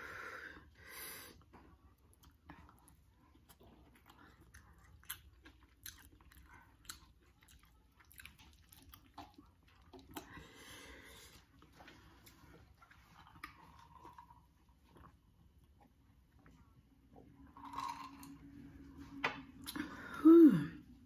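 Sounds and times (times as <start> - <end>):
chewing noodles: 1.4 - 16.6.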